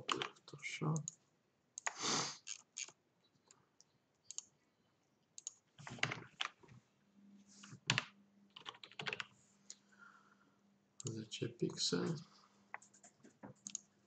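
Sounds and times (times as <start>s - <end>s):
typing on a computer keyboard: 0.0s - 0.3s, 4.3s - 4.5s, 5.4s - 6.6s, 7.9s - 9.3s, 12.8s - 13.9s
faint low hum: 9.2s - 12.9s.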